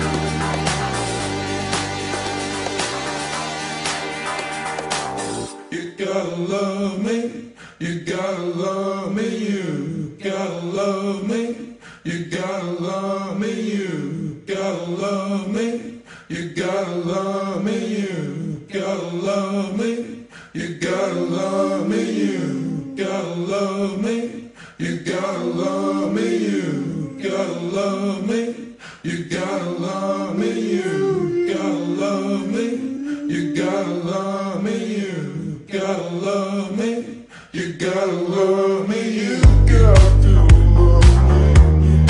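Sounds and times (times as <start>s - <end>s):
voices chanting a phrase: 5.7s - 41.2s.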